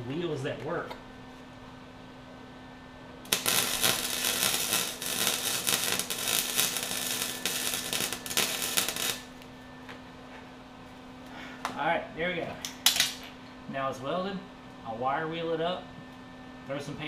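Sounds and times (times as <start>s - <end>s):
steady low hum: 0.0s - 17.0s
welding arc crackling: 3.2s - 9.6s.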